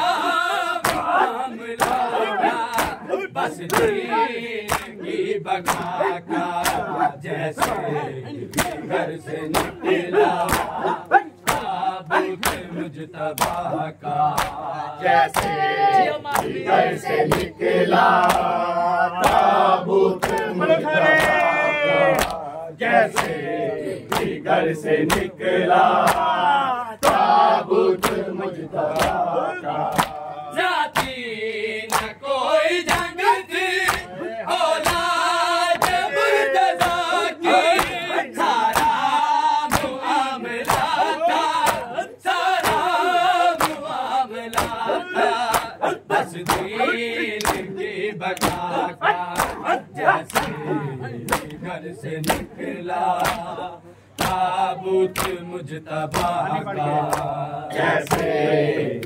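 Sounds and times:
men chanting in chorus: 0:00.0 - 0:59.0.

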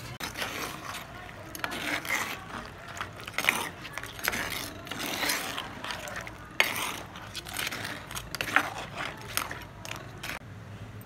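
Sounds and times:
utensil scraping clay pot: 0:00.0 - 0:10.4.

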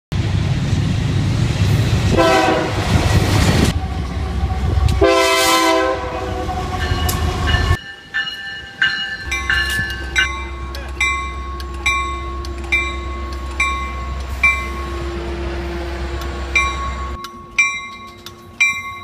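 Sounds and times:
diesel locomotives rumbling: 0:00.1 - 0:19.0
chorded air horn: 0:02.2 - 0:02.9, 0:03.9 - 0:07.7.

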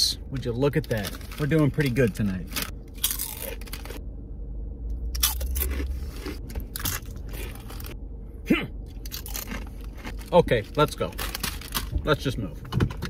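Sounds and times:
potato chips crunching: 0:00.4 - 0:04.0, 0:05.1 - 0:08.0, 0:08.9 - 0:11.9.

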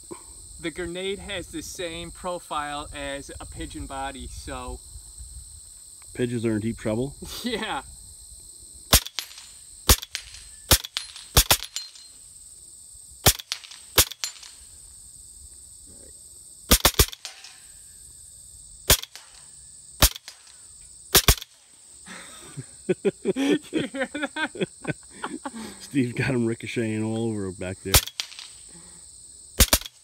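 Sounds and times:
air rifle cracks: 0:08.9 - 0:11.8, 0:16.7 - 0:17.6, 0:18.9 - 0:20.6, 0:21.2 - 0:21.6, 0:28.0 - 0:28.6, 0:29.6 - 0:30.0.

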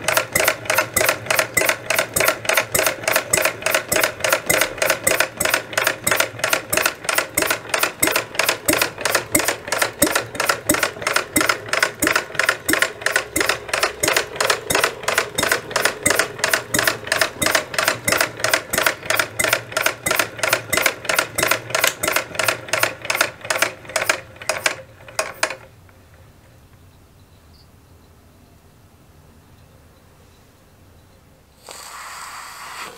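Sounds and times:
small engine running: 0:00.0 - 0:24.1, 0:31.6 - 0:32.9.

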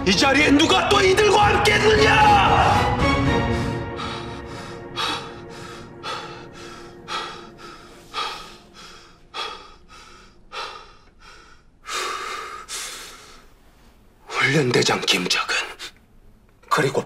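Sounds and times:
heavy breathing: 0:03.4 - 0:14.0.

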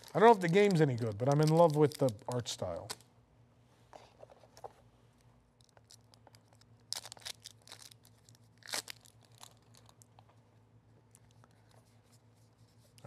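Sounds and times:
packaging being torn: 0:00.0 - 0:03.0, 0:05.6 - 0:10.1.

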